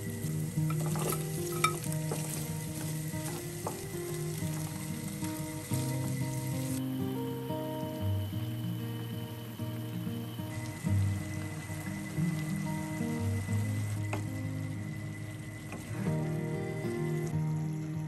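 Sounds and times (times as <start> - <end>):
spatula stirring: 0.0 - 4.9
food sizzling in a frying pan: 0.0 - 18.0
soft background music: 0.0 - 18.0.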